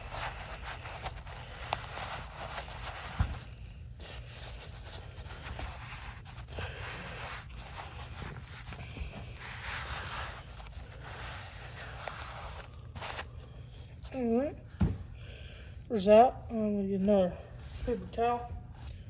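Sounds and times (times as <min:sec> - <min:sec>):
soft thump: 0:14.8 - 0:15.1.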